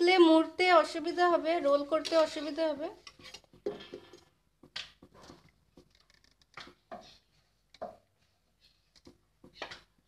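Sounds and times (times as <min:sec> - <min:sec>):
spatula scraping a pan: 0:03.0 - 0:04.1.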